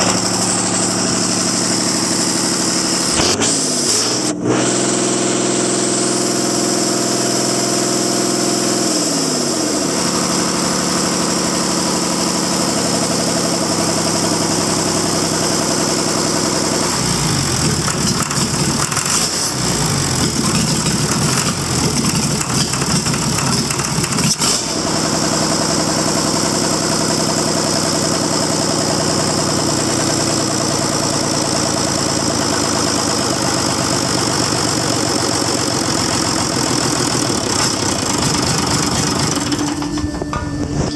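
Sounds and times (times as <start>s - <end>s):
diesel engine running: 0.0s - 40.9s.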